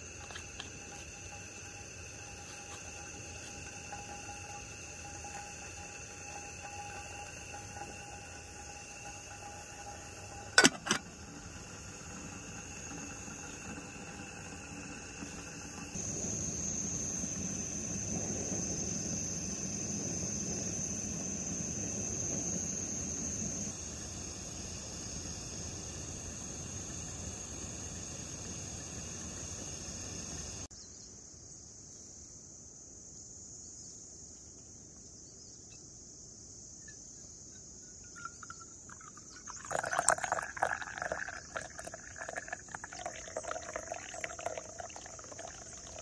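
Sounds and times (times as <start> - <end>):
crickets and insects chirping: 0.0 - 46.0
high insect trill: 0.0 - 46.0
kettle lid metallic clicks: 10.6 - 11.1.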